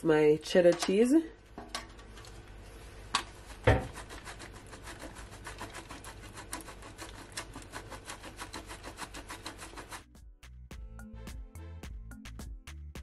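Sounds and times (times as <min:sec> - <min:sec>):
cheese grating on metal grater: 0:03.2 - 0:10.1.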